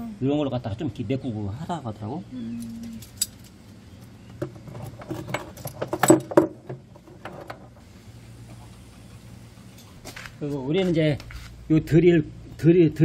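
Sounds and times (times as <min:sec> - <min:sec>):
metal clinking and knocking: 0:04.3 - 0:07.8.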